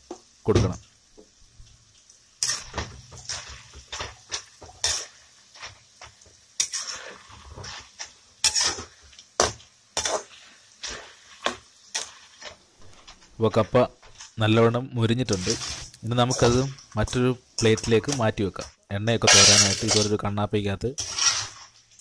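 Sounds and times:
frying oil bubbling: 0.0s - 20.2s, 20.8s - 22.0s
metal ladle scraping a wok: 2.4s - 14.4s, 15.2s - 16.9s, 19.2s - 20.1s, 21.0s - 21.8s.

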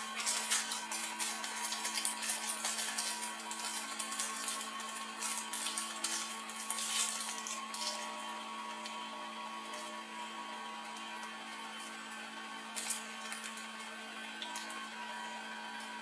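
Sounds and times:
plastic packaging crinkling: 0.0s - 9.1s, 12.7s - 14.8s.

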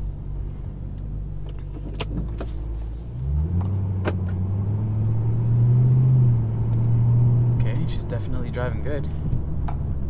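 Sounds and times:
car engine accelerating: 0.0s - 10.0s.

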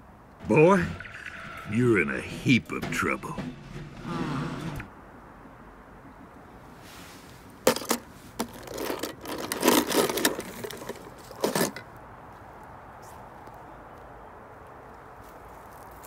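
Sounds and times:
metal toy cars clattering: 7.6s - 11.9s.

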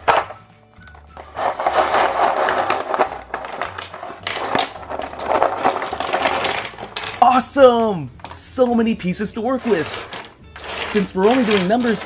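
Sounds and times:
plastic pieces clattering on table: 0.0s - 8.6s, 9.4s - 12.0s.

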